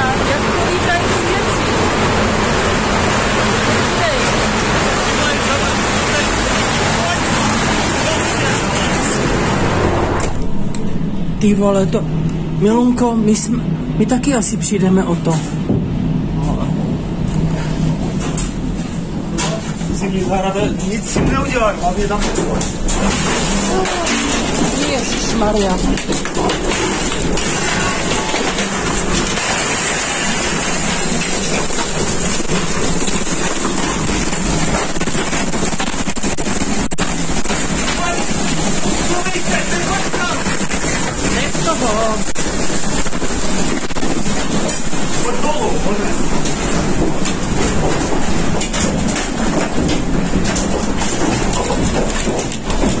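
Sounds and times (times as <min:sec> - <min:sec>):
driving rain: 0:00.0 - 0:53.0
violent wind: 0:00.0 - 0:53.0
scattered knocks: 0:21.0 - 0:53.0.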